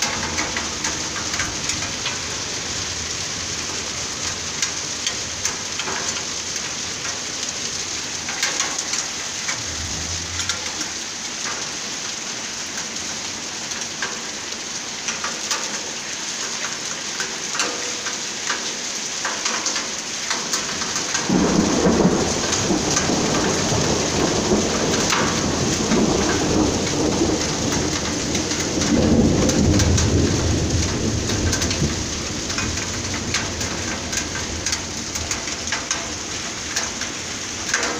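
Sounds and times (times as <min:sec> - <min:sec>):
hail and rain on stone: 0:00.0 - 0:37.9
thunder rumbling: 0:09.2 - 0:11.7, 0:21.2 - 0:35.8.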